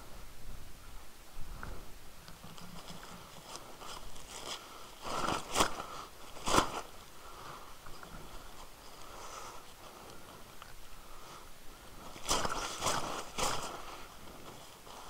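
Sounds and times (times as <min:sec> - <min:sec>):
plastic rain cover crinkling: 0:02.4 - 0:07.2, 0:12.0 - 0:15.0.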